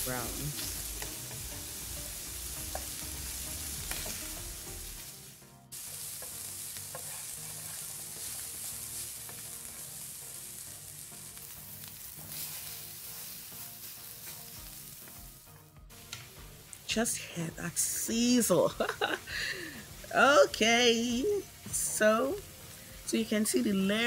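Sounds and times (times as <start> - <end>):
meat sizzling in hot oil: 0.0 - 24.0
spatula scraping a pan: 6.1 - 9.9.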